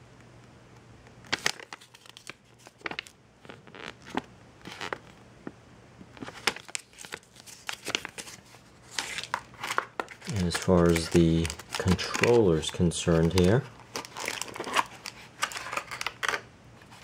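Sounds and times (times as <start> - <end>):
paper pages rustling: 1.3 - 5.2, 6.1 - 17.0.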